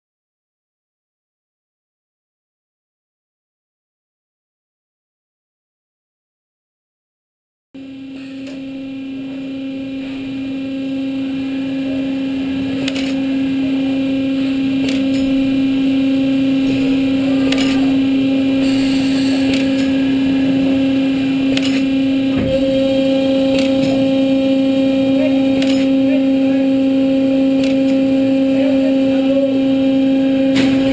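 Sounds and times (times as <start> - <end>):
machine mechanical hum: 7.8 - 30.9
sharp metallic clicks: 21.5 - 21.9.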